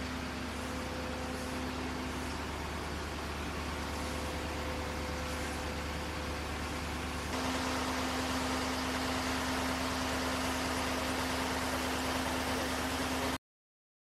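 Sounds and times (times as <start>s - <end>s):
truck engine humming: 0.0s - 13.4s.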